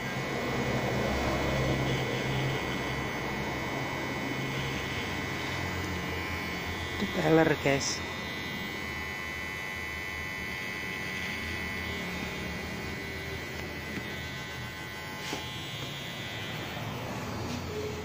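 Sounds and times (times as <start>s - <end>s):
hair clipper buzzing: 0.0s - 18.0s.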